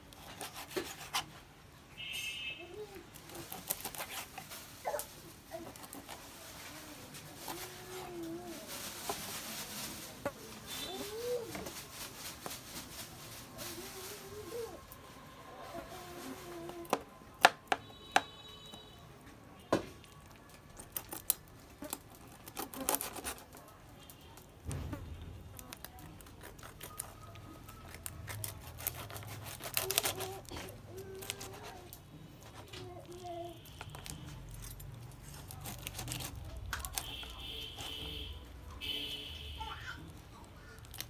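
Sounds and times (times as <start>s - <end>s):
knife slicing scrapes: 0.1s - 1.4s, 3.5s - 4.5s, 27.8s - 31.8s.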